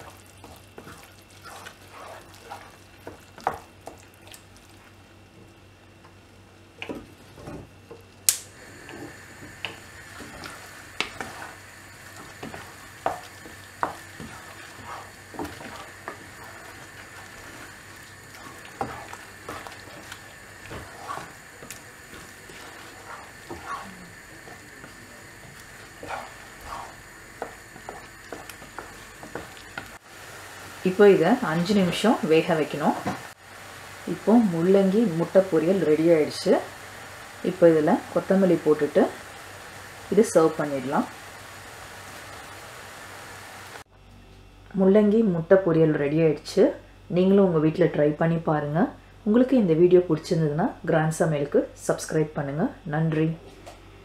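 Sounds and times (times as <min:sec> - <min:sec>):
wooden spatula scraping saucepan: 0:00.0 - 0:03.7, 0:08.8 - 0:30.0
food sizzling: 0:00.0 - 0:05.3, 0:06.8 - 0:43.9.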